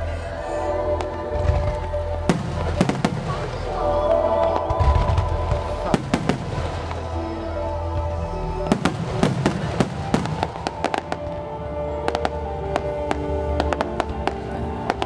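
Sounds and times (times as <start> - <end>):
low rumble: 0.0 - 15.0
music: 0.0 - 15.0
fireworks bursting with sharp bangs: 1.0 - 3.8, 4.4 - 7.2, 8.7 - 11.4.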